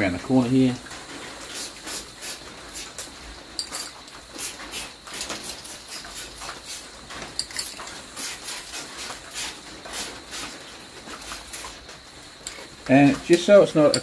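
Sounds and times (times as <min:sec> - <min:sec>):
short bursts of spray paint hissing: 0:01.4 - 0:11.8.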